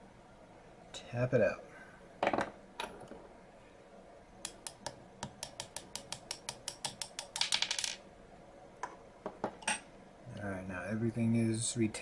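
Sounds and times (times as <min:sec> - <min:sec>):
hammer tapping pin punch: 0:04.4 - 0:07.4.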